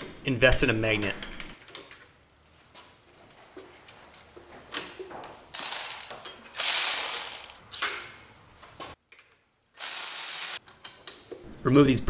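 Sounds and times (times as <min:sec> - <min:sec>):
power ratchet loosening bolts: 0:05.6 - 0:08.0.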